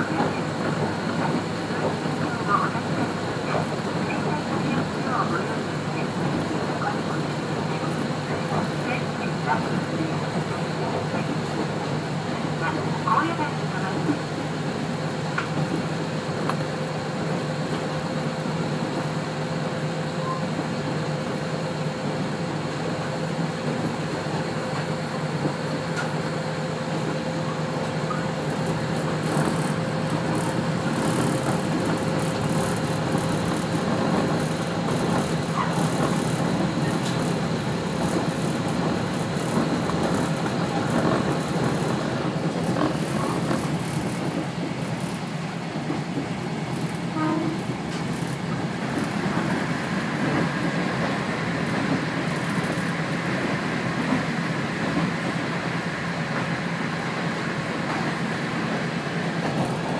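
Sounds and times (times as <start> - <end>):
railcar engine and wheels drone: 0.0 - 59.9
rattly running noise: 24.5 - 54.2.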